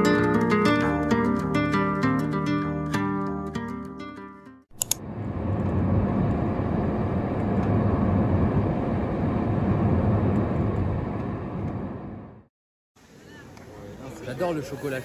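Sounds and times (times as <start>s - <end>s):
car road noise: 5.0s - 12.5s.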